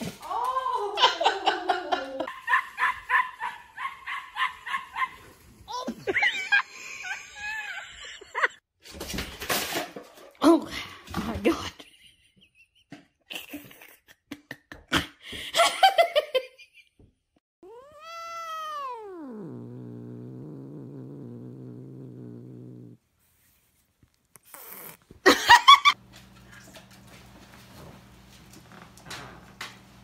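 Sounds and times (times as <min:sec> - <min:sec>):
cat chirping: 0:17.6 - 0:23.0
cat growling: 0:17.6 - 0:23.0, 0:24.3 - 0:25.1
cat meowing: 0:17.6 - 0:23.0
kitten mewing: 0:17.6 - 0:23.0.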